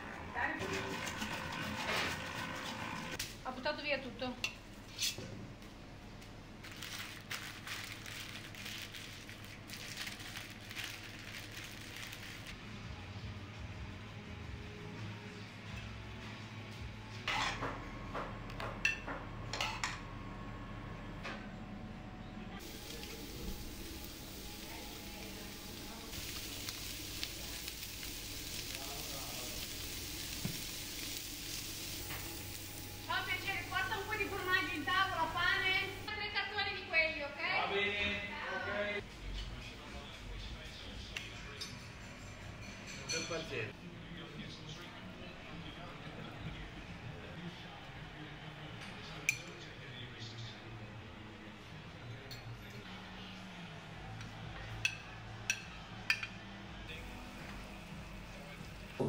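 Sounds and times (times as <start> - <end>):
parchment paper crinkling: 6.6 - 12.6
meat sizzling on a grill: 22.6 - 36.1, 57.0 - 59.0.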